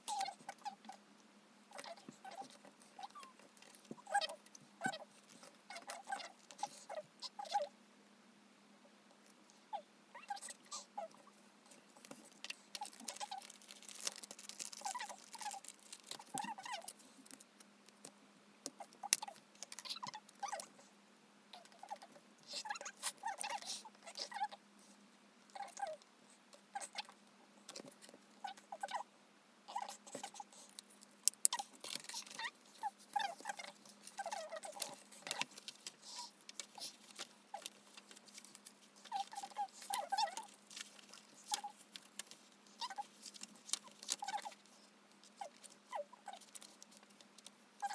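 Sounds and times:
paper and plastic rustling: 0:11.7 - 0:18.1, 0:31.5 - 0:44.8
pages being turned: 0:33.4 - 0:44.6.

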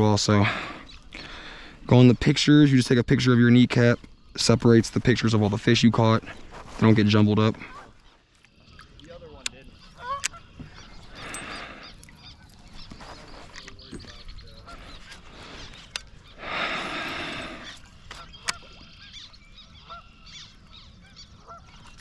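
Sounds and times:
honking bird calls: 0:09.7 - 0:22.0.

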